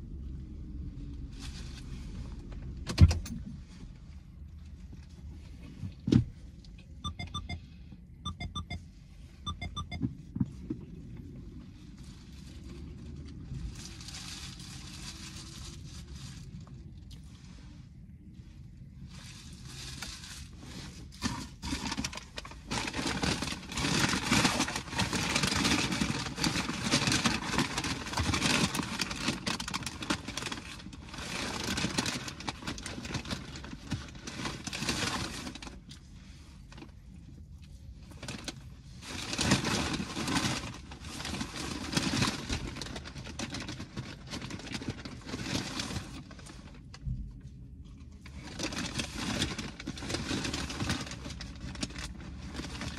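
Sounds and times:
paper bag rustling: 39.1 - 46.8, 48.4 - 52.9.

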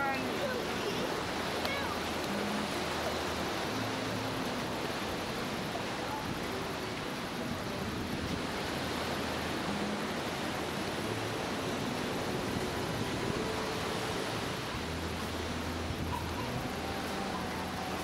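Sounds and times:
waves washing onto beach: 0.0 - 18.0.

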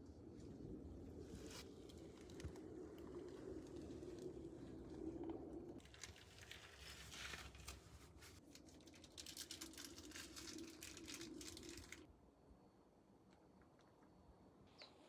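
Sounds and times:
faint scratchy rustling and crackling: 0.3 - 12.1.

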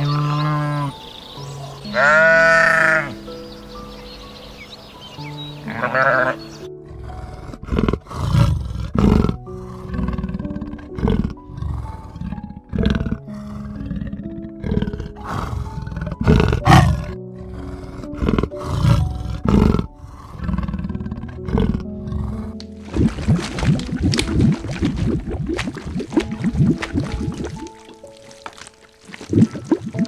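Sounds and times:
wavering bleat: 0.0 - 0.9, 1.9 - 3.2, 5.6 - 6.6
background music: 0.0 - 30.0
animal roars: 5.7 - 22.6.

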